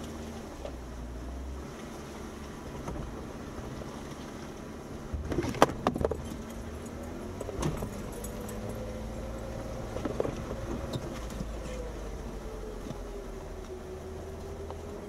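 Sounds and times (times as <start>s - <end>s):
vehicle engine running low: 0.0s - 15.0s
knocks and jangling rattles: 5.4s - 8.8s.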